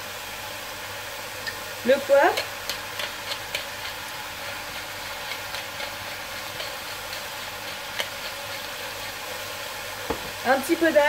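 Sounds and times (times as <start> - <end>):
vegetables sizzling in oil: 0.0 - 11.0
pepper mill grinding: 1.8 - 10.4.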